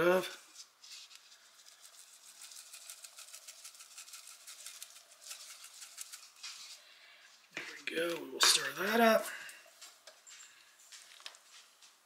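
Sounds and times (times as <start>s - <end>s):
spice shaker rattling: 1.3s - 6.8s.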